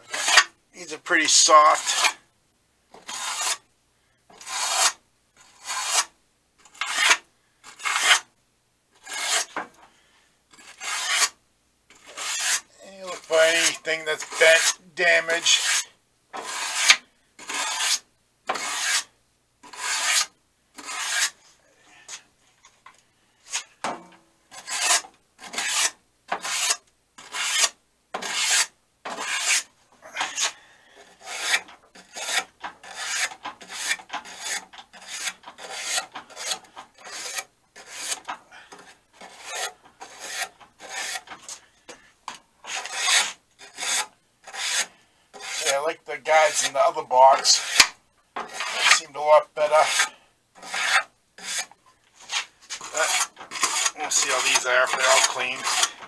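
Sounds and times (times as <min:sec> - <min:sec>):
wire brush scrubbing metal: 0:12.0 - 0:15.8, 0:24.6 - 0:41.6, 0:42.6 - 0:56.0.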